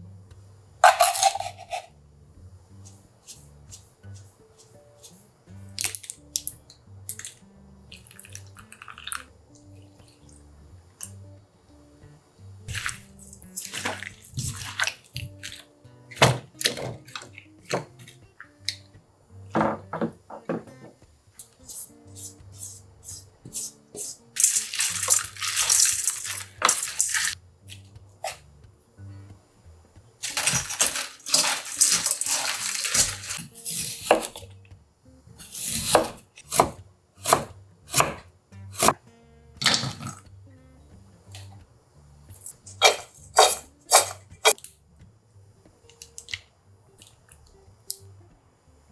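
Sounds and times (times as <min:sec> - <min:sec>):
soft instrumental music: 0:00.0 - 0:48.9
cubes tipped into steel bowl: 0:00.8 - 0:01.8
wet squelching and scraping: 0:12.7 - 0:15.6, 0:30.2 - 0:33.9
salt poured over leaves: 0:24.4 - 0:27.4, 0:30.2 - 0:33.4
knife chopping on wooden board: 0:33.8 - 0:34.4, 0:35.5 - 0:38.2.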